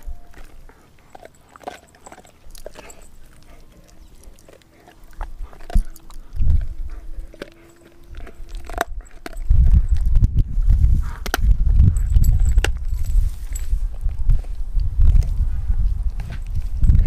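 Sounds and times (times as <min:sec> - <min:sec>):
dog crunching bone: 0:00.0 - 0:17.0.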